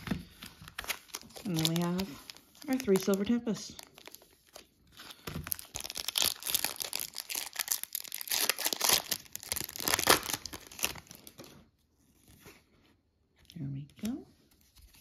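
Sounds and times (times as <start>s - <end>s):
foil wrapper tearing and crinkling: 0.6s - 11.5s.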